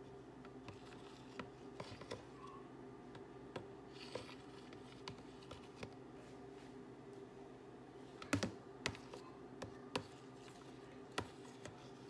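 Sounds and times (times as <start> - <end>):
low steady hum: 0.0 - 12.0
small clicks and taps: 8.2 - 10.1.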